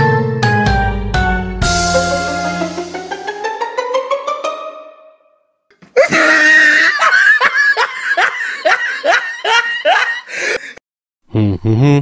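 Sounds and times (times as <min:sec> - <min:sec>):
cartoon character laughing: 0:06.0 - 0:10.3.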